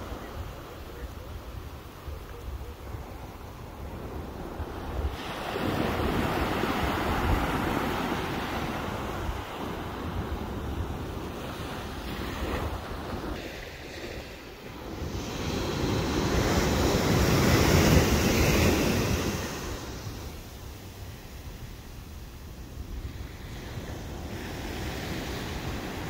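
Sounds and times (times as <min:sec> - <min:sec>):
small waves breaking on beach: 0:00.0 - 0:26.0
wind gusting on microphone: 0:00.0 - 0:26.0.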